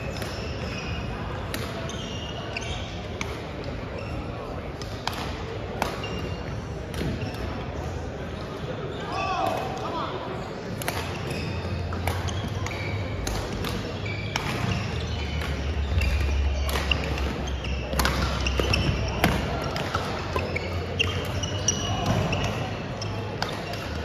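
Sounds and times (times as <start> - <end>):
background chatter: 0.0 - 24.0
racket hitting shuttlecock: 4.8 - 6.3, 10.8 - 22.6, 23.3 - 24.0
shoes squeaking on wooden floor: 11.2 - 23.4.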